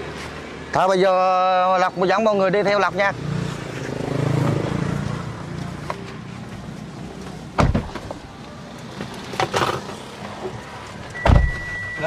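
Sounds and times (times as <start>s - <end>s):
street traffic hum: 0.0s - 12.0s
car door thudding shut: 7.6s - 8.2s, 11.2s - 11.8s.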